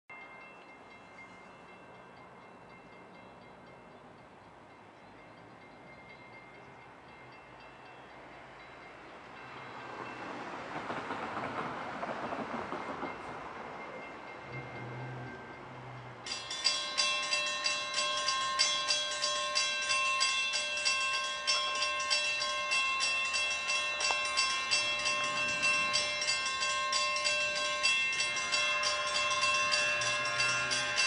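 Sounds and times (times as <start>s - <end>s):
railroad crossing bell ringing: 0.1s - 31.0s
train rumble and hiss: 0.3s - 18.6s.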